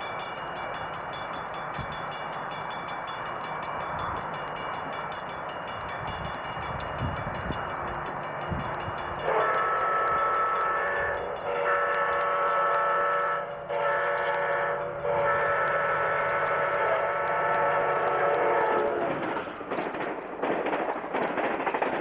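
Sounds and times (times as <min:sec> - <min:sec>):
wheels clattering over rails: 0:03.2 - 0:22.0
locomotive air horn: 0:09.2 - 0:19.2.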